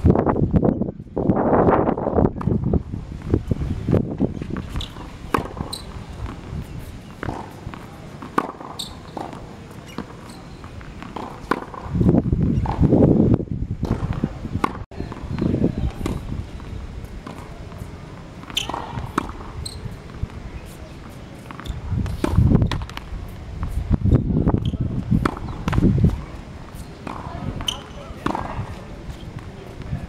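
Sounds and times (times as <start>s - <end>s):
wind gusts on microphone: 0.0s - 8.2s, 10.7s - 30.0s
ball bouncing on hard court: 4.4s - 11.9s, 18.4s - 20.4s, 24.5s - 26.2s, 27.0s - 28.8s
tennis ball struck by racket: 4.4s - 12.0s, 13.8s - 23.8s, 24.6s - 29.8s.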